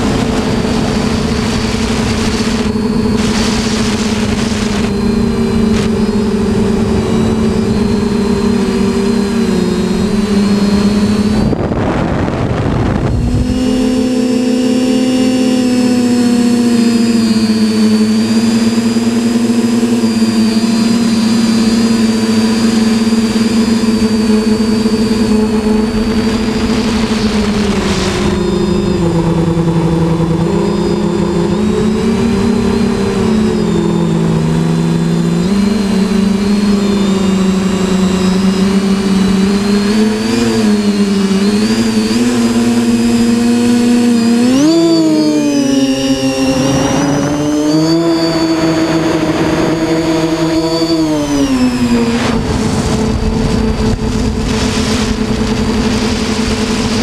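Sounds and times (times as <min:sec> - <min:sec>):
quadcopter motors humming: 0:00.0 - 0:57.0.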